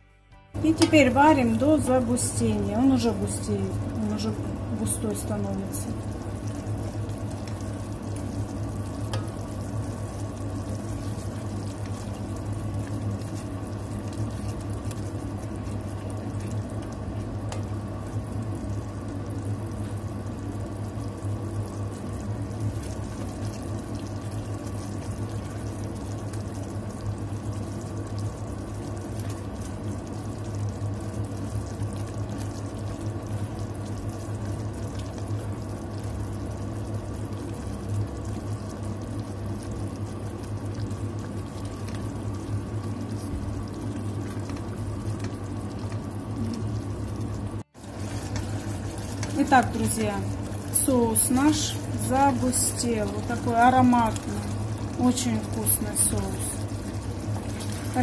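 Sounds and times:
steady low hum: 0.0s - 58.0s
sauce simmering and bubbling: 0.9s - 58.0s
wooden spoon stirring in pot: 3.8s - 19.2s, 47.7s - 58.0s.

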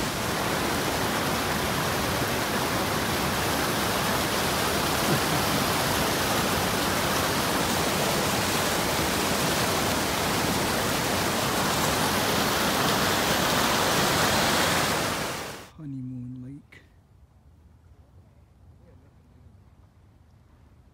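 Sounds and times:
water rushing over rocks: 0.0s - 15.7s.

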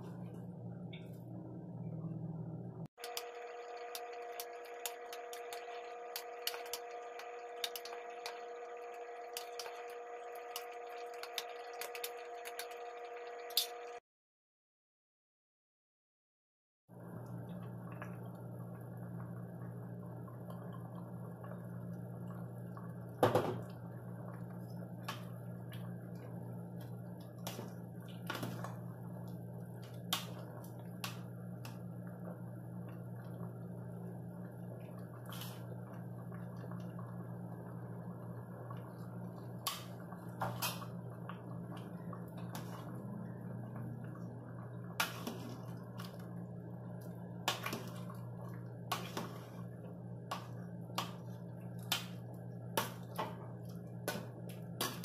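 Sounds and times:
steady low hum: 0.0s - 14.0s, 17.0s - 55.0s.

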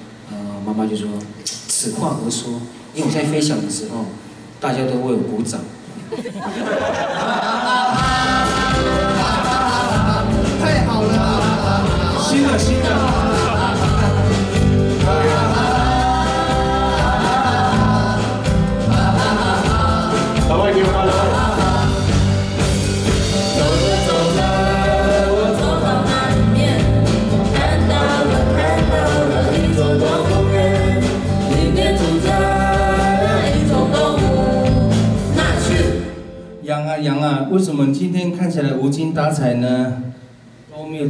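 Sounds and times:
live band with sung vocals: 0.0s - 38.1s
moving bass line: 8.0s - 36.1s.

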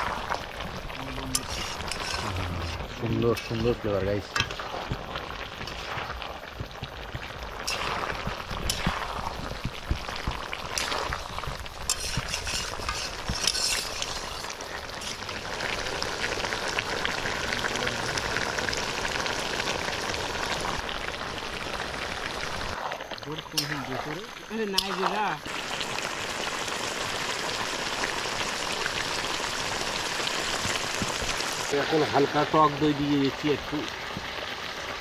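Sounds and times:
curry sizzling in a pan: 0.0s - 35.0s
spatula scraping a pan: 1.3s - 5.0s, 7.6s - 9.5s, 10.2s - 15.2s.

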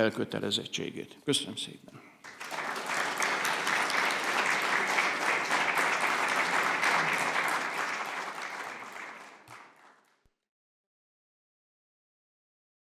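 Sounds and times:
audience applauding: 2.2s - 10.3s.

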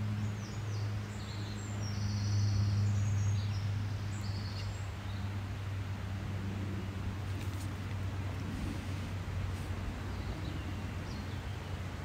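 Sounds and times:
songbird chirping and trilling: 0.0s - 5.4s.

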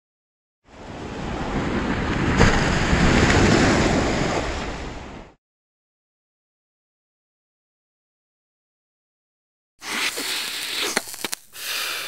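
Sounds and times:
waves breaking: 0.7s - 5.4s.

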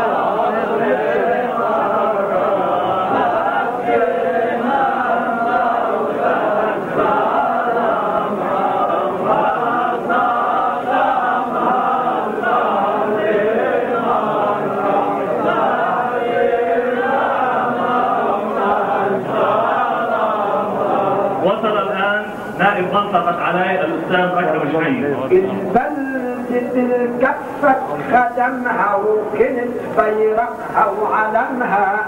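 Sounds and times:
men chanting a lament: 0.0s - 32.0s.

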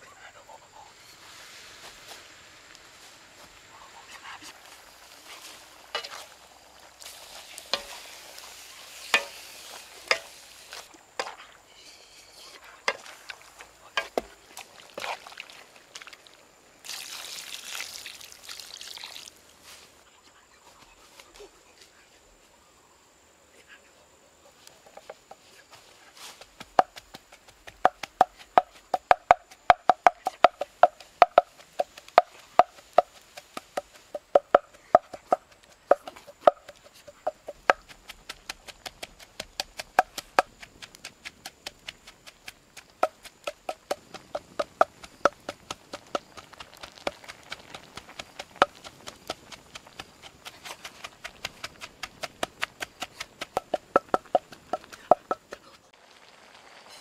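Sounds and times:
food popping in hot wok: 4.8s - 10.4s, 27.8s - 50.4s, 51.0s - 56.7s.

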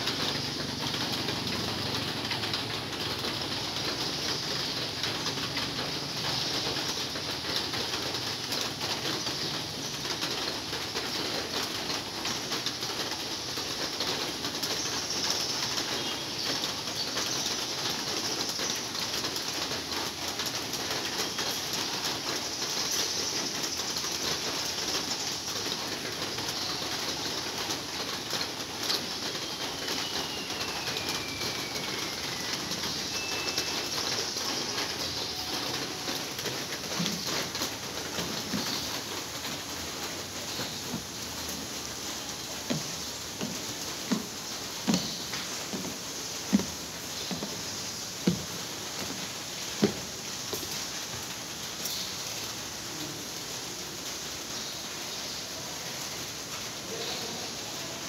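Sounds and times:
heavy rain on a roof: 0.0s - 58.0s
bird whistle: 29.9s - 34.6s.

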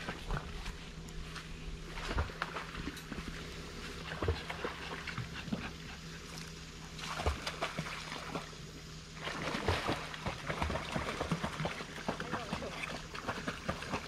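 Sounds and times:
water splashing: 6.9s - 8.5s, 9.2s - 14.0s.

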